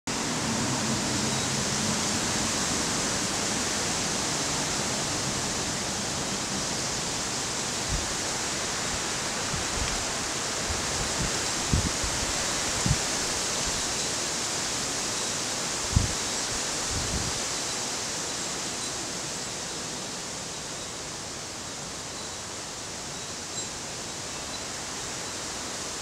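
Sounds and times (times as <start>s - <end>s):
steady rushing noise: 0.1s - 20.4s.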